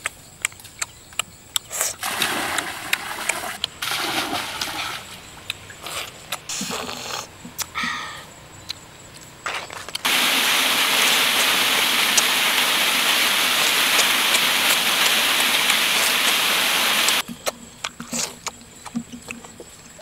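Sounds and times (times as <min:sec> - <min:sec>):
waterfall rushing onto rock: 0:10.0 - 0:17.2.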